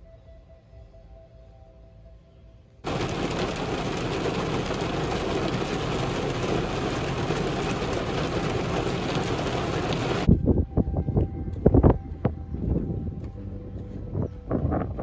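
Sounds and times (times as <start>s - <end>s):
heavy rain on car roof: 2.8s - 10.3s.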